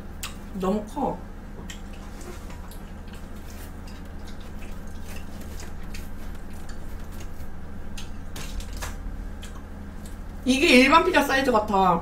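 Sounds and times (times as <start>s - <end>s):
steady low hum: 0.0s - 12.0s
pizza crust crackling: 2.0s - 9.4s.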